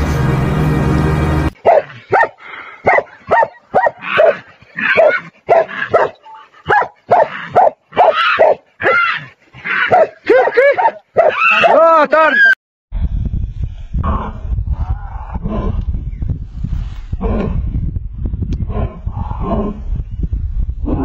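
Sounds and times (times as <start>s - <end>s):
dog barking sharply: 1.6s - 9.0s, 9.9s - 11.8s.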